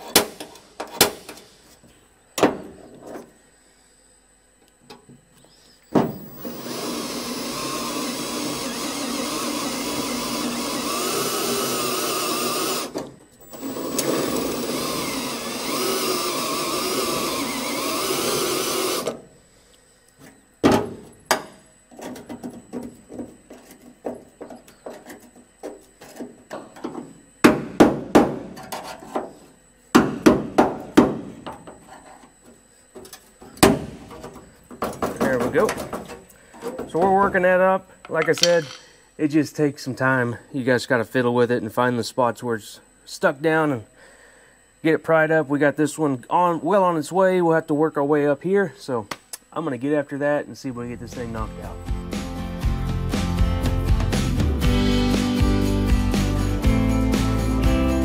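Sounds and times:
drill cutting steel: 6.2s - 19.2s
screwdriver hammered into metal: 38.2s - 38.9s.

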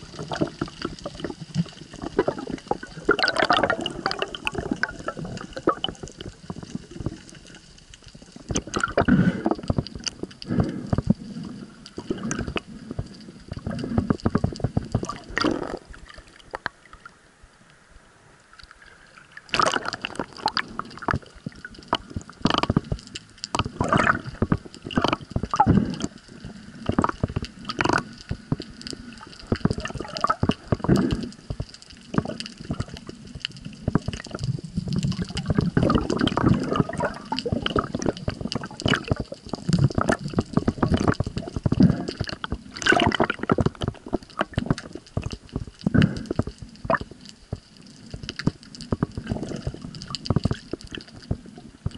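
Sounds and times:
bubbly bursts: 0.0s - 7.4s, 13.5s - 16.6s, 19.2s - 22.8s, 23.5s - 26.1s, 26.8s - 31.3s, 33.9s - 47.1s, 49.0s - 51.9s
water sloshing and gurgling: 0.0s - 17.3s, 18.4s - 51.9s.

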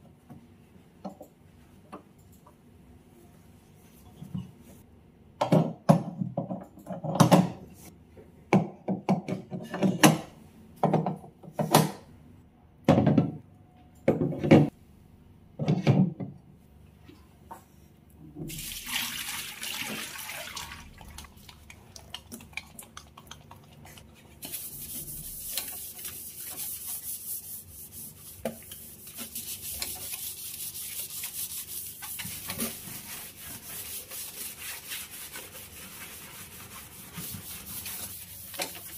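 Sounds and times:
water splashing into metal sink: 18.5s - 23.3s
brush scrubbing metal: 24.2s - 38.9s.

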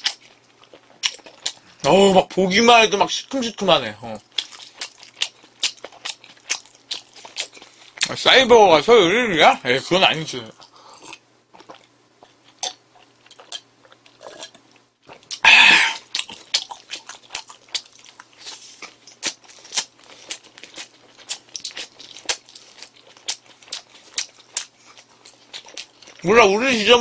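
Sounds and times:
rapid crunching chewing: 0.0s - 1.9s, 4.0s - 8.2s, 10.4s - 26.7s
crunchy bite of fried food: 10.6s - 26.2s
faint mouth sounds: 15.2s - 16.3s.

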